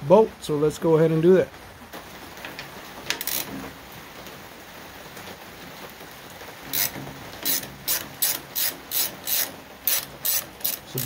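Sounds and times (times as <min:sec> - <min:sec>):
low hiss: 0:00.0 - 0:11.0
socket ratchet clicking: 0:03.1 - 0:03.5, 0:06.7 - 0:11.0.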